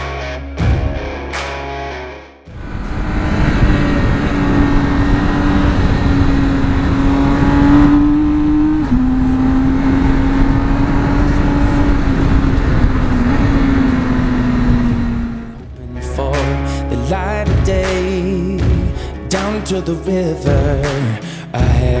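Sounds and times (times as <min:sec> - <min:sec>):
wind rush: 0:02.5 - 0:15.8
motorcycle engine running: 0:02.5 - 0:15.9.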